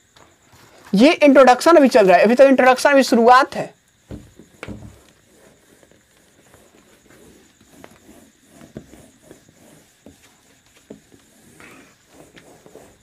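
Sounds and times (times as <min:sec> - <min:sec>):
light knocks: 0:04.1 - 0:05.0
duster rubbing whiteboard: 0:04.1 - 0:13.0.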